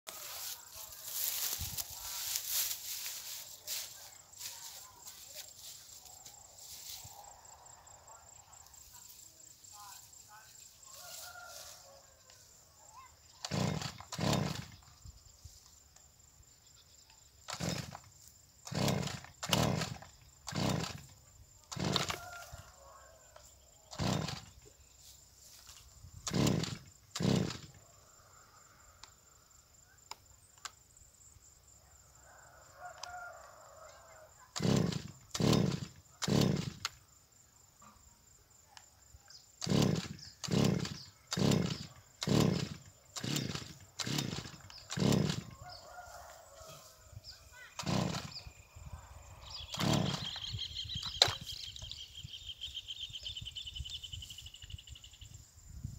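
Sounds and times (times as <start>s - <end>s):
brushcutter engine turning over: 0.2s - 5.2s, 13.4s - 14.8s, 17.4s - 22.6s, 23.9s - 24.7s, 25.7s - 27.8s, 34.5s - 37.0s, 39.6s - 45.8s, 47.8s - 48.5s, 49.5s - 51.9s.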